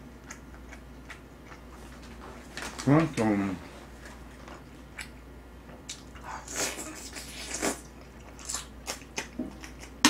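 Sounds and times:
person chewing wetly: 0.0 - 2.2, 4.6 - 5.2, 5.8 - 10.0.

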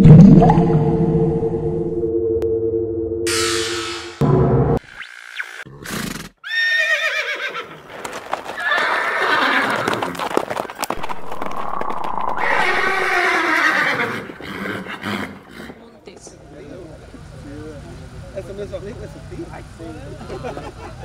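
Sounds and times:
horse whinny: 5.8 - 7.8, 8.6 - 10.2, 11.5 - 15.8
hoofbeats: 7.6 - 15.9.

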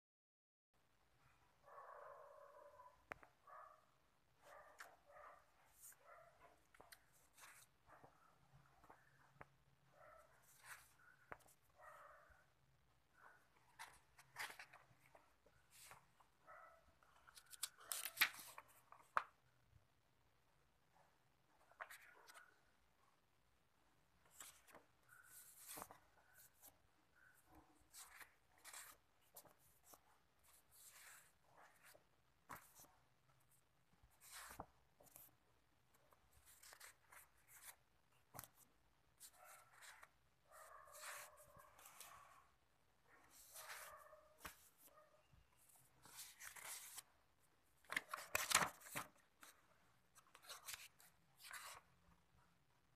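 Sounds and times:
paper rustling and crackling: 13.5 - 16.2, 17.1 - 19.4, 24.3 - 26.7, 27.4 - 32.9, 46.0 - 47.1, 47.8 - 51.9.

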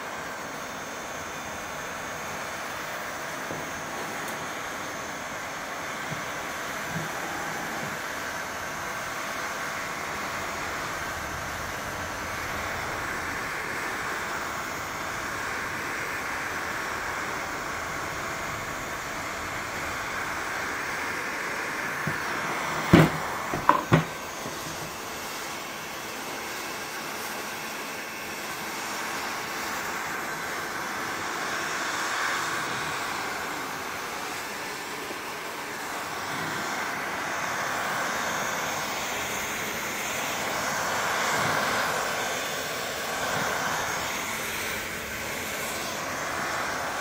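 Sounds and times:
heat gun blowing: 0.0 - 47.0
sharp knocks: 22.9 - 24.2.

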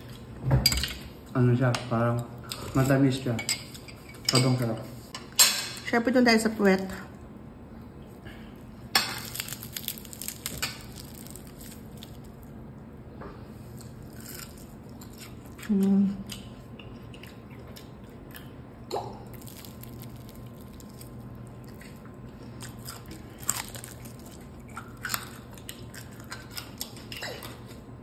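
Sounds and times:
fried chicken crust crackling: 9.0 - 12.5, 19.3 - 27.0.

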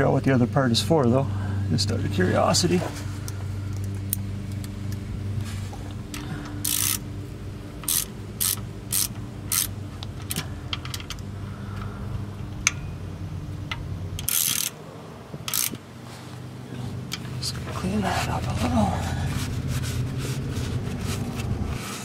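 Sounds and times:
hand ratchet clicking: 6.2 - 7.0, 7.8 - 11.2, 13.7 - 14.8, 15.4 - 15.8.

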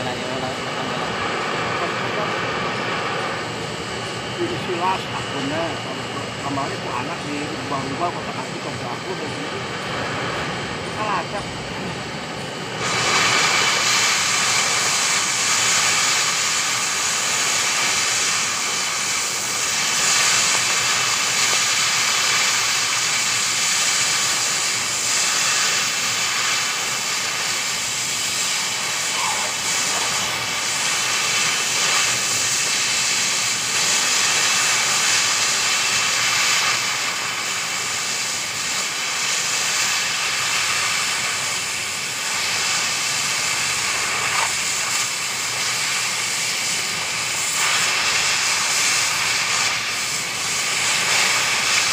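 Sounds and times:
cutting torch hissing: 0.0 - 51.9.

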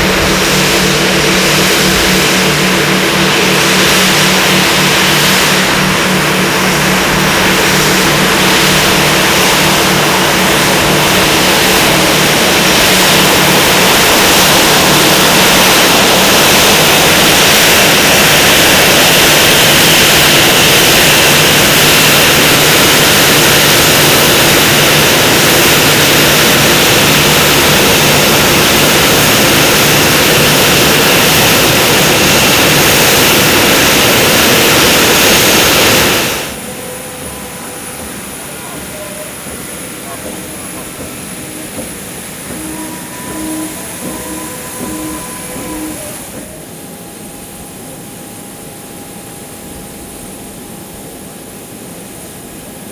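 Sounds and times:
jet engine roar: 0.0 - 47.9
high engine whine: 0.0 - 52.9
low hum: 35.3 - 48.7.

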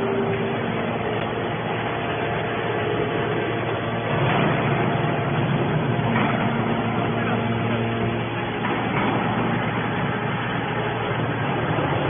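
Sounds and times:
hydraulic baler droning: 0.0 - 12.0.

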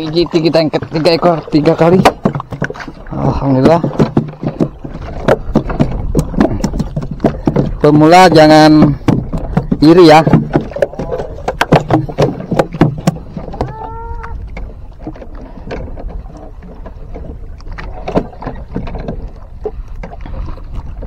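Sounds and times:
fish slapping on wooden deck: 8.8 - 13.8.

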